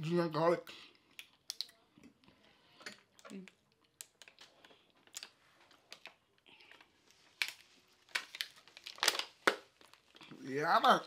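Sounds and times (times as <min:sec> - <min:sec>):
wet chewing and lip smacks: 0:01.0 - 0:02.3.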